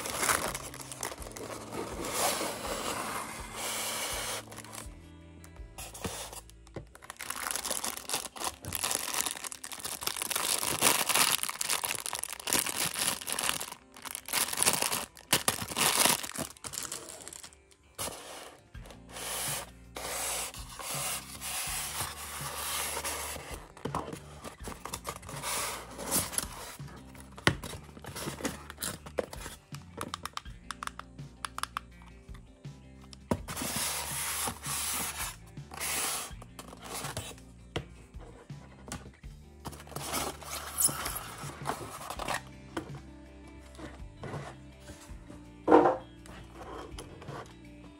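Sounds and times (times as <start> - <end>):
background music: 0.0 - 47.9
plastic bag crinkling: 7.0 - 17.6.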